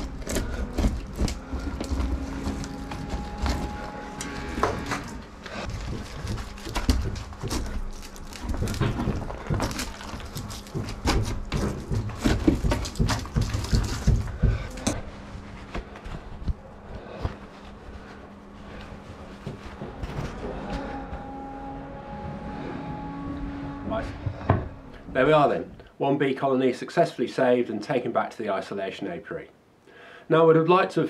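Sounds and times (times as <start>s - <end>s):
tools knocking and scraping plaster: 0.0s - 15.0s.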